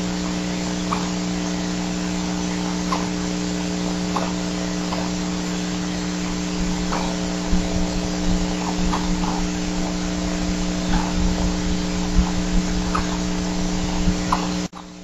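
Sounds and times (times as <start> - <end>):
electrical hum and hiss: 0.0 - 15.0.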